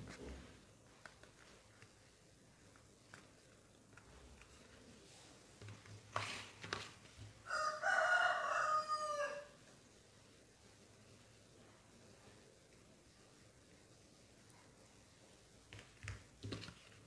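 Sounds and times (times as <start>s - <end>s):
rooster crowing: 7.4s - 9.6s.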